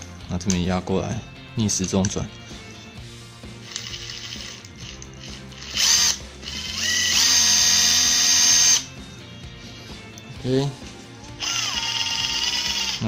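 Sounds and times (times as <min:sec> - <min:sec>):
impact driver motor whine: 0:05.6 - 0:09.0, 0:11.4 - 0:13.0.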